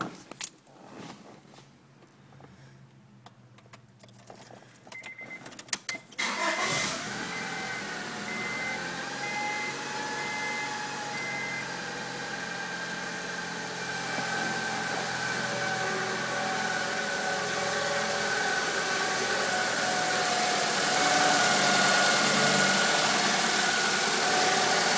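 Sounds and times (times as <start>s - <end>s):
keys jingling in ignition: 3.6s - 7.1s
car engine starting and idling: 6.1s - 24.9s
warning chime beeping: 7.3s - 11.8s.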